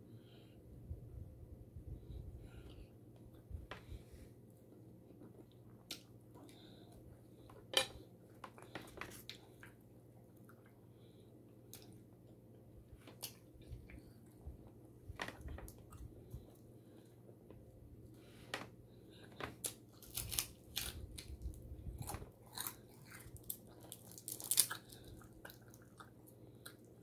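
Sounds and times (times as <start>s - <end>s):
person chewing: 19.2s - 27.0s.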